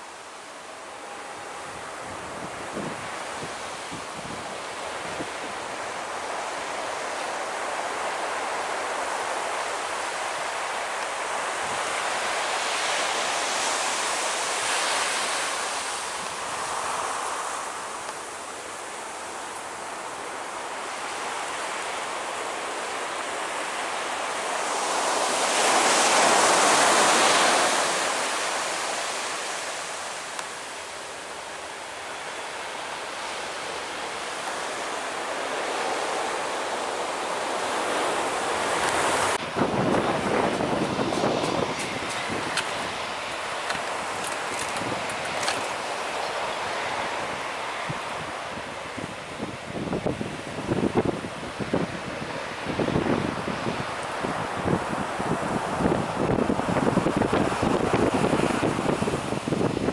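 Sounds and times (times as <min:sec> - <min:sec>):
surf washing onto beach: 0:00.0 - 0:59.9
wind on microphone: 0:01.6 - 0:06.0, 0:37.6 - 0:59.9.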